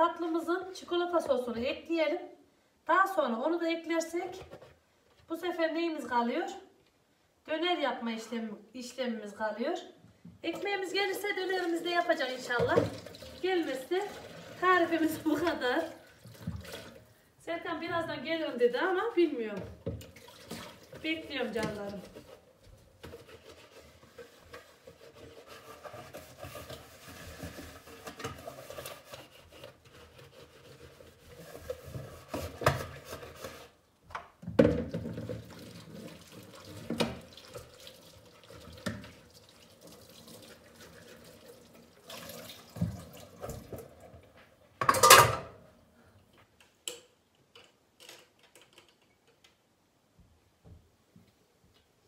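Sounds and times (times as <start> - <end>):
tap water running into sink: 11.4 - 17.0, 19.8 - 21.8, 34.8 - 44.1.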